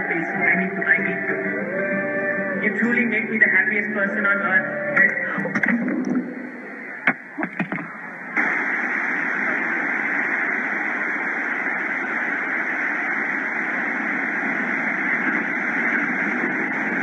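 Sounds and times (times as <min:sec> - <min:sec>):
sea surf: 0:05.1 - 0:17.0.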